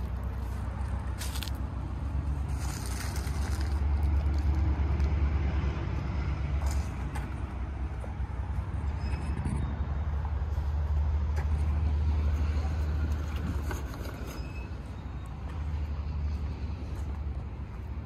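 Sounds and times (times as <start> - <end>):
vehicle passing by rumble: 0.0 - 14.2.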